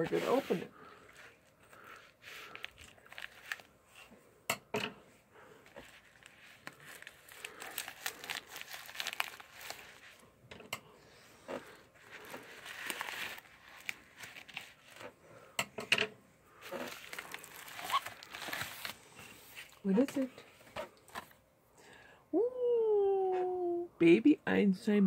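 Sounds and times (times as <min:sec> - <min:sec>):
plastic mailer crinkling: 0:01.9 - 0:03.8, 0:05.6 - 0:10.2, 0:11.6 - 0:15.1, 0:16.6 - 0:20.3.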